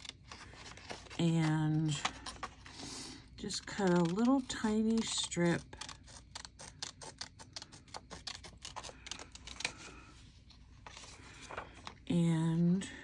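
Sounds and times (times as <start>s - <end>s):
scissors snipping paper: 0.0s - 9.8s
paper handling: 0.0s - 12.0s.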